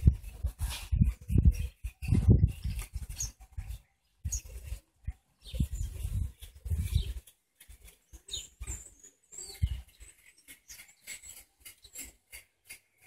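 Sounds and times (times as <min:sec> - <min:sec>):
birds chirping: 0:00.0 - 0:13.0
small clicks and pattering: 0:04.6 - 0:13.0.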